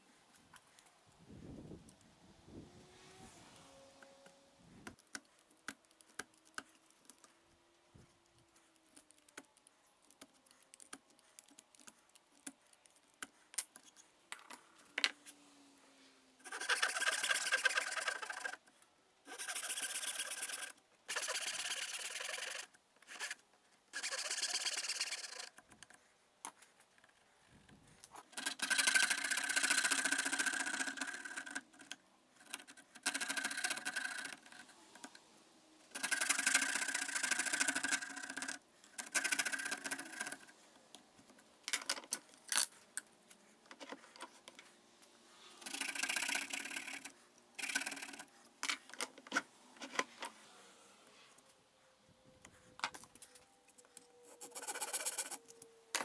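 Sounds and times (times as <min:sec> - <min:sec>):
handsaw cutting wood: 0:16.4 - 0:18.6.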